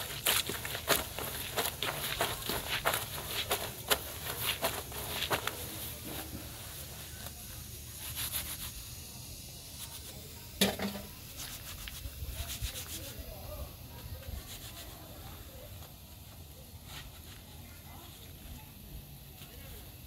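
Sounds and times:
clothes squelching in soapy water: 0.0 - 6.8.

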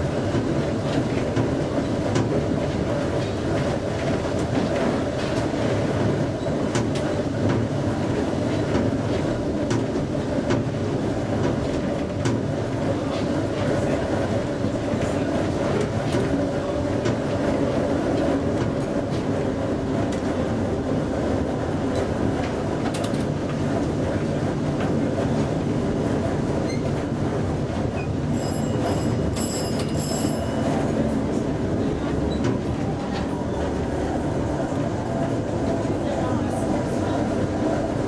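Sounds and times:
tram wheels rumbling on rail: 0.0 - 38.0
short high-pitched rings: 28.4 - 30.8.

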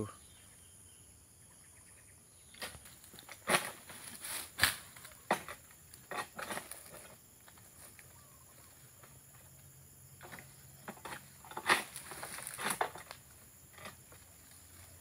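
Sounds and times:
faint insect buzz: 0.0 - 15.0
sickle cutting dry palm fronds: 2.5 - 8.2, 10.2 - 15.0
fronds rustling: 2.5 - 15.0.

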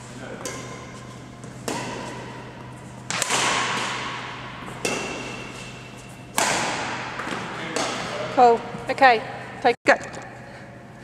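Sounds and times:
racket hitting shuttlecock: 0.4 - 8.3.

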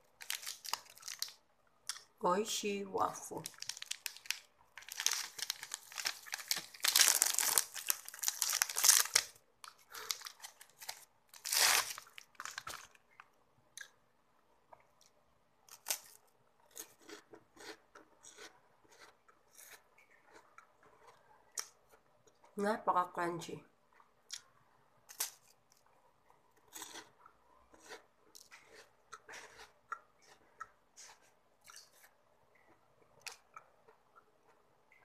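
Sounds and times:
plastic wrapper crinkling and tearing: 0.0 - 2.0, 3.4 - 13.1, 15.7 - 16.2, 25.1 - 25.8.

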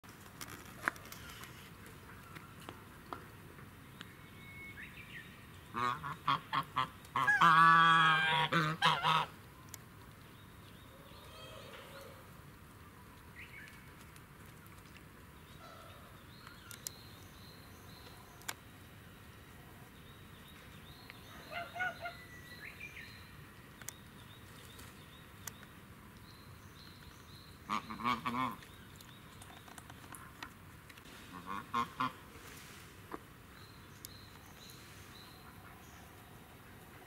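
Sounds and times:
outdoor background: 0.0 - 37.0
geese and ducks calling: 5.8 - 9.3
faint clicks: 16.3 - 18.7, 23.5 - 26.3.

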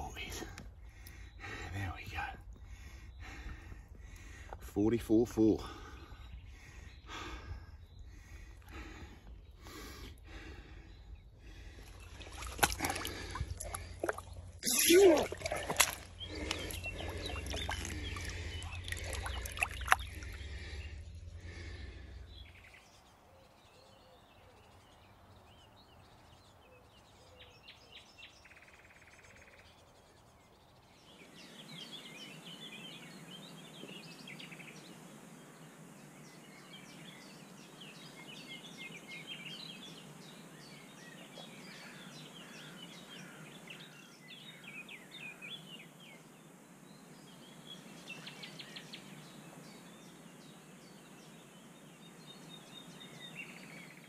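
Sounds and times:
songbirds chirping and singing: 0.0 - 54.0
water splashing and sloshing: 11.4 - 22.1
low handling rumble: 16.0 - 22.7.

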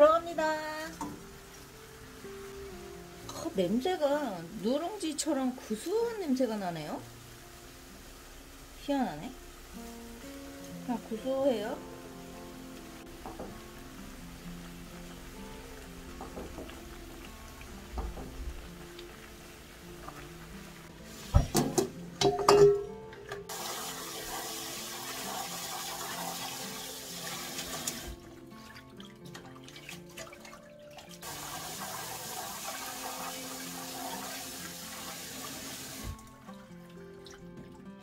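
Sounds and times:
background music: 0.0 - 38.0
tap running into a steel sink: 16.2 - 16.8, 17.9 - 18.6, 21.3 - 23.6
water splashing: 23.5 - 38.0.

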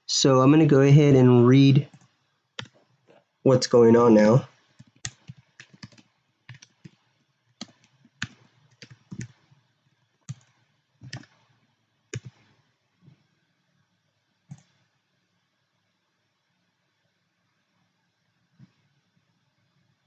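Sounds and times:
computer keyboard keystrokes: 1.9 - 2.8, 4.8 - 7.0, 7.6 - 9.4, 10.3 - 11.4, 12.2 - 12.5.

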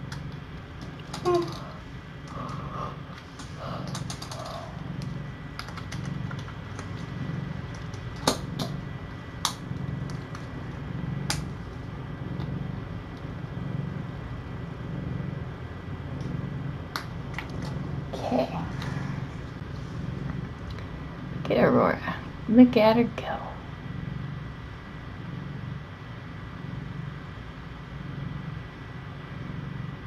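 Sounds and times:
cat purring: 0.0 - 30.0
sharp clicks: 0.1 - 7.1.

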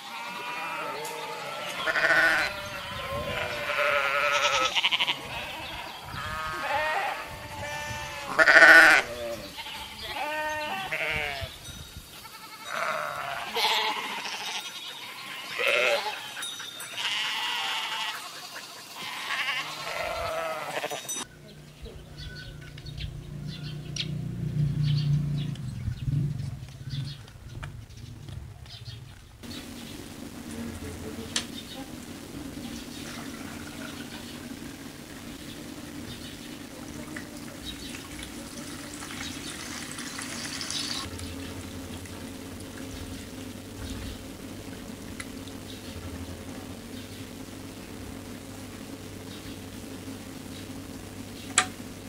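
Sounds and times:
goats bleating: 0.0 - 11.6, 12.2 - 21.3
low steady hum with ticks: 12.2 - 52.0.

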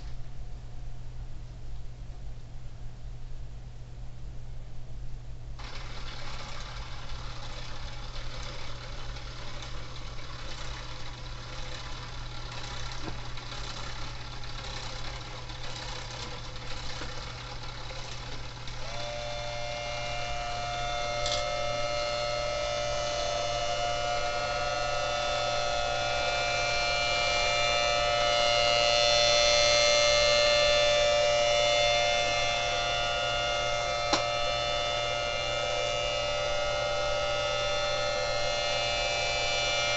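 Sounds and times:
siren motor whirring: 5.6 - 39.9
siren sounding a chord: 18.9 - 39.9.

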